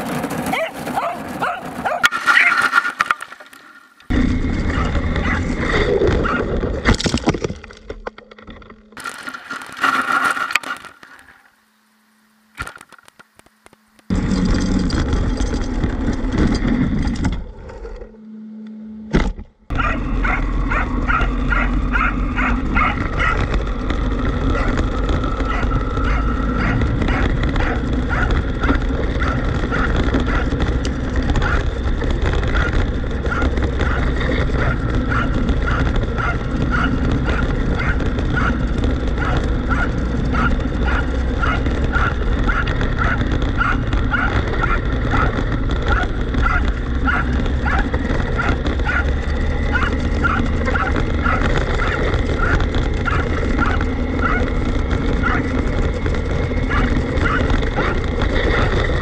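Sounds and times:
toy car rumbling on dirt: 0:00.0 - 0:11.5, 0:14.1 - 0:18.2, 0:19.2 - 0:59.0
dog barking: 0:00.5 - 0:02.6, 0:04.7 - 0:05.5, 0:06.2 - 0:06.5, 0:19.7 - 0:23.4, 0:24.5 - 0:24.8, 0:25.4 - 0:30.5, 0:31.4 - 0:31.7, 0:32.6 - 0:34.0, 0:34.6 - 0:38.6, 0:39.2 - 0:49.1, 0:49.7 - 0:54.4, 0:55.2 - 0:55.5, 0:56.7 - 0:58.0.

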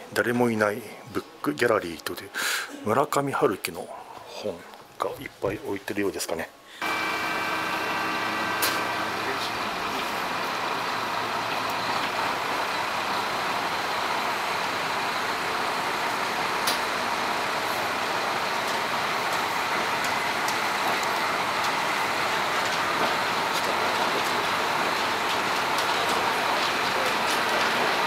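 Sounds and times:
train rolling: 0:06.8 - 0:28.0.

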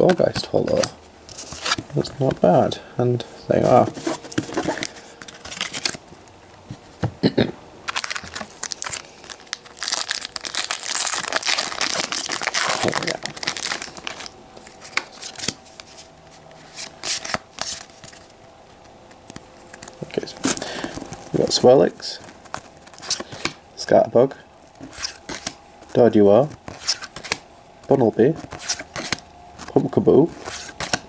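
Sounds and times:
foil wrapper crinkling and tearing: 0:07.9 - 0:18.2, 0:19.6 - 0:23.6.

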